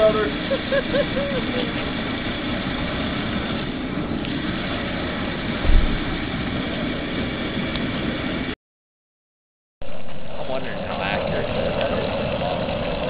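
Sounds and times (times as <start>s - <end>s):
propane burner running: 0.0s - 8.6s, 9.8s - 13.0s
brief low thump: 5.6s - 6.2s.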